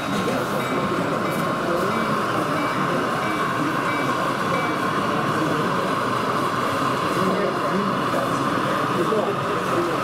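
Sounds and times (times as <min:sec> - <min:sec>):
model train rolling hum: 0:00.0 - 0:10.0
short high beeps: 0:00.6 - 0:04.8.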